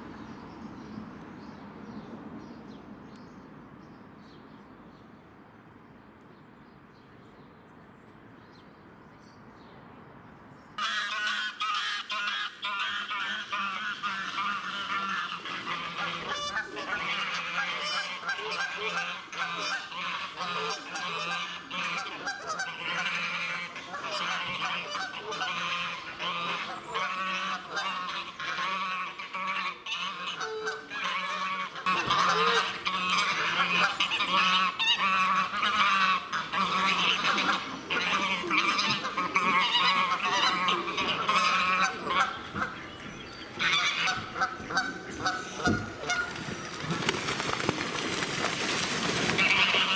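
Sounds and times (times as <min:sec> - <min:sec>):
geese honking: 0:10.8 - 0:47.0, 0:48.1 - 0:49.9.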